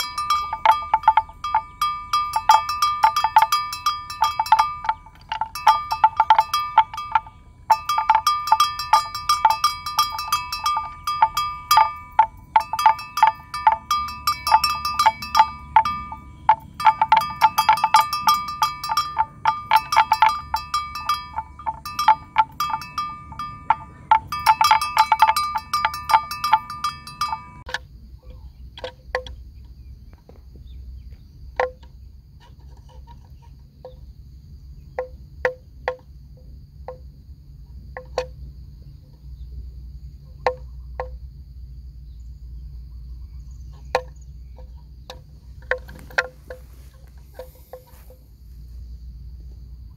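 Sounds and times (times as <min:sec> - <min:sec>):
animal bell clanging: 0:00.0 - 0:27.8, 0:40.2 - 0:41.2, 0:43.0 - 0:48.5.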